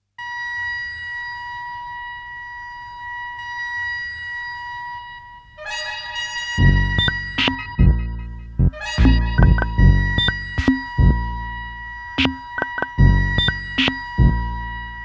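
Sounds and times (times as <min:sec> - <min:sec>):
cluster of synthesizer tones: 0:06.5 - 0:15.0
high synthesizer tone: 0:06.6 - 0:15.0
low rumbling noise: 0:06.6 - 0:15.0.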